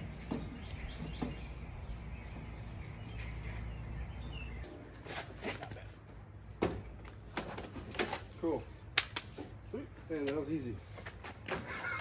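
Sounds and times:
birds chirping: 0:00.0 - 0:06.0.

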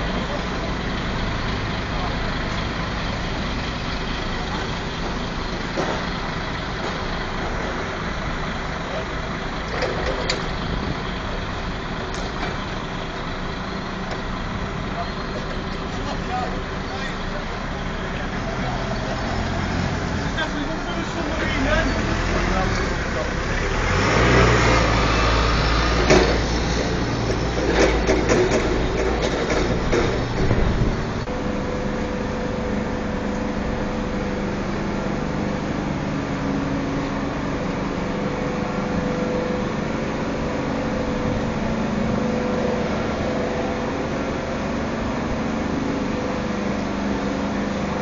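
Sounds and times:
heavy machinery engine rumbling: 0:00.0 - 0:48.0
sharp knocks and clanks: 0:05.0 - 0:07.9, 0:12.1 - 0:12.7, 0:26.0 - 0:31.0.

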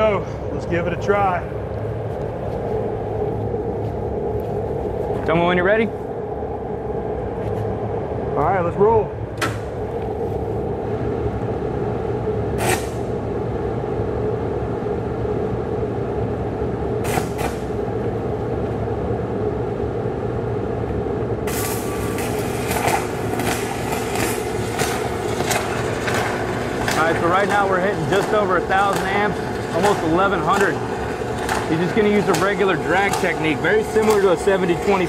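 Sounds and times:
machinery drone: 0:00.0 - 0:35.0
arc welding crackling: 0:17.0 - 0:17.8, 0:21.4 - 0:35.0.

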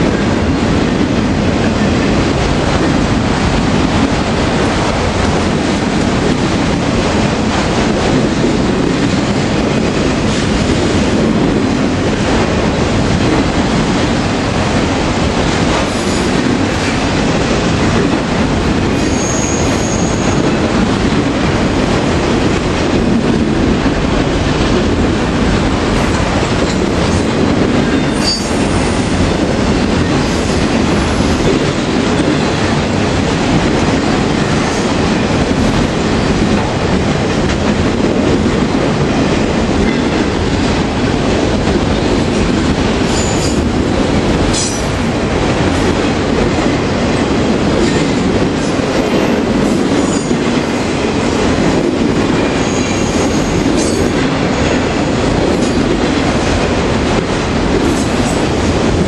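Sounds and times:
train wheels rumbling on rail: 0:00.0 - 0:59.0
clacking over rail joints: 0:25.8 - 0:46.8.

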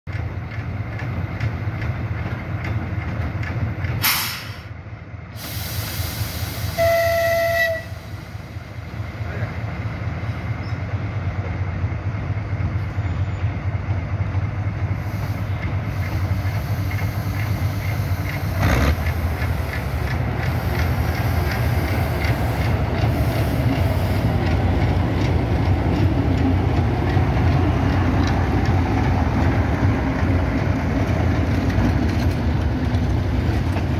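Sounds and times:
diesel locomotive engine rumbling: 0:00.0 - 0:33.9
locomotive horn blast: 0:06.7 - 0:08.1.

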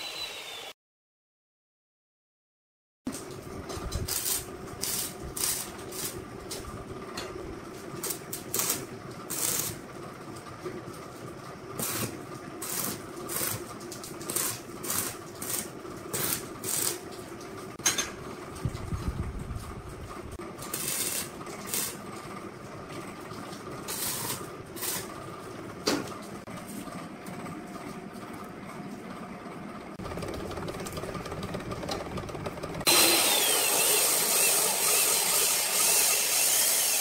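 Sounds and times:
welding arc crackling: 0:04.1 - 0:06.2, 0:08.0 - 0:09.8, 0:11.8 - 0:17.0, 0:20.6 - 0:22.0, 0:23.9 - 0:25.2.

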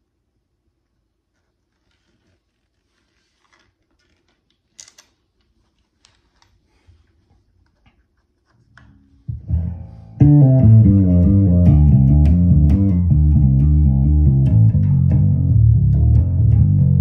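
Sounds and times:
bass guitar handling clicks: 0:09.3 - 0:17.0.

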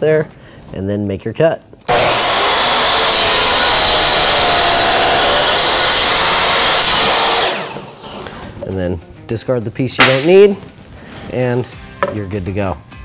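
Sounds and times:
miter saw cutting wood: 0:01.9 - 0:08.3.

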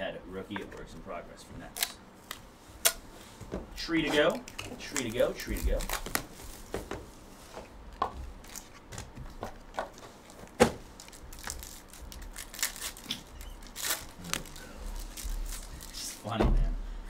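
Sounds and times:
plastic wrapper crinkling and tearing: 0:04.3 - 0:06.7, 0:08.4 - 0:09.1, 0:09.9 - 0:16.2.

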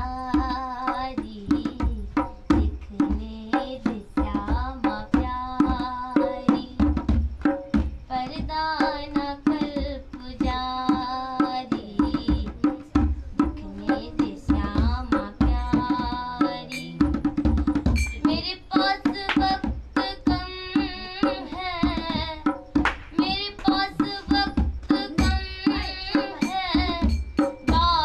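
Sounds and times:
girl singing: 0:00.0 - 0:28.0.

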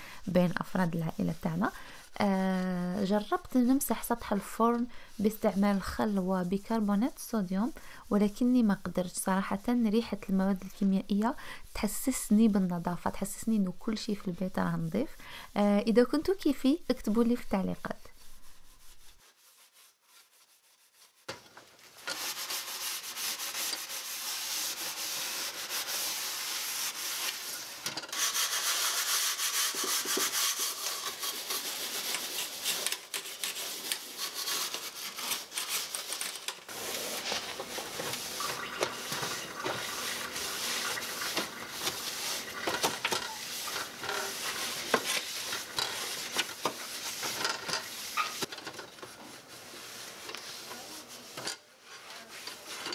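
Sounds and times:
hands scrubbing stove top: 0:00.5 - 0:15.2, 0:16.0 - 0:52.9.

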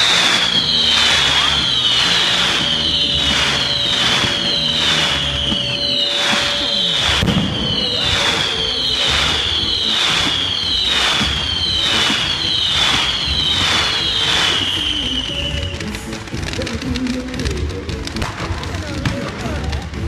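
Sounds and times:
whistling firework shots: 0:00.0 - 0:16.5
sharp firework bang: 0:03.2 - 0:14.6.

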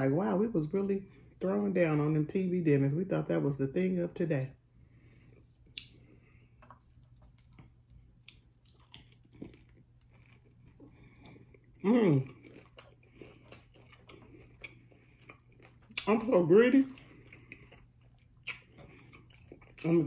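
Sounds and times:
crunching taco shell: 0:06.7 - 0:20.0
person vocal sound: 0:11.8 - 0:12.4.

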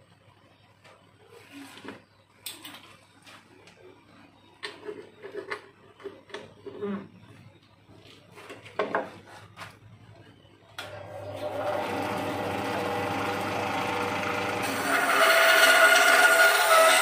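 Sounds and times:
band saw humming: 0:11.2 - 0:17.0
saw blade cutting wood: 0:14.6 - 0:17.0.

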